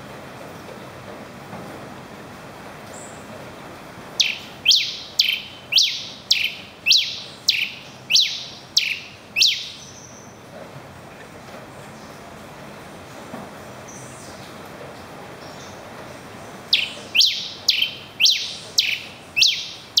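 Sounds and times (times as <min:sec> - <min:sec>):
finch singing descending notes: 0:04.2 - 0:10.2, 0:16.7 - 0:20.0.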